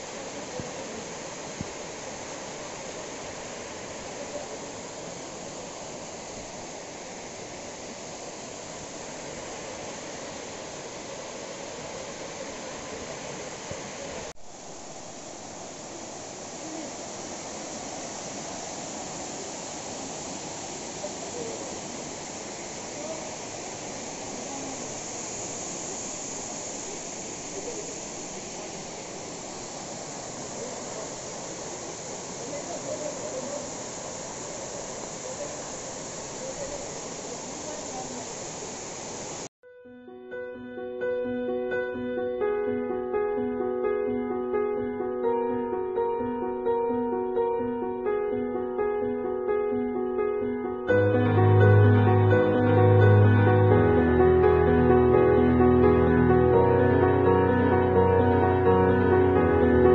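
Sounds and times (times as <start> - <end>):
waterfall rushing: 0.0 - 39.5, 50.7 - 59.9
faint voices: 15.6 - 25.2, 26.8 - 39.1.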